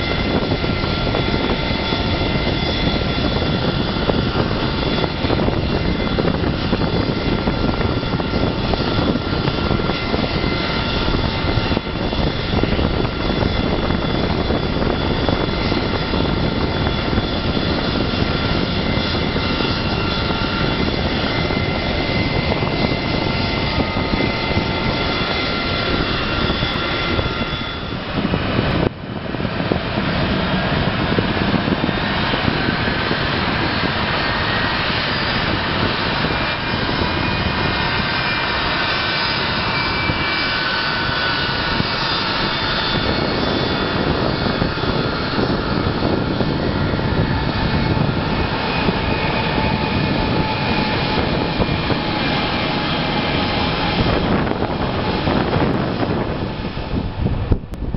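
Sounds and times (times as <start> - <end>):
high steady engine whine: 0.0 - 57.9
jet engines idling: 0.0 - 57.9.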